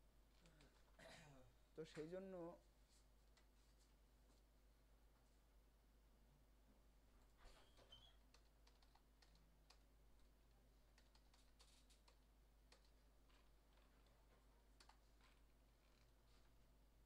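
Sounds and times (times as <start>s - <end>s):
computer keyboard keystrokes: 8.3s - 9.9s, 10.9s - 13.4s, 14.8s - 16.1s.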